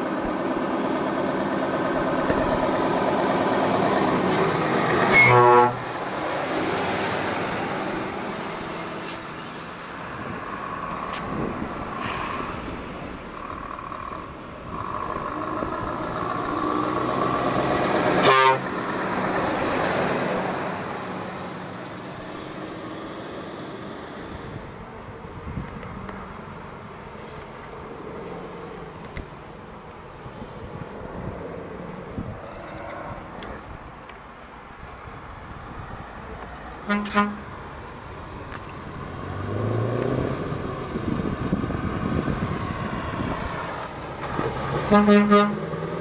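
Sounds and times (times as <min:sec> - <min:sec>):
trucks driving past: 0:00.0 - 0:46.0
truck horn blasts: 0:05.0 - 0:06.0, 0:18.2 - 0:18.8, 0:36.8 - 0:37.5, 0:44.8 - 0:45.8.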